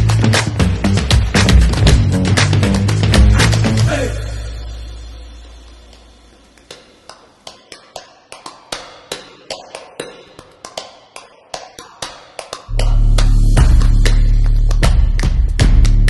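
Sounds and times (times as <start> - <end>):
music track with heavy bass: 0.0 - 5.8, 12.7 - 16.0.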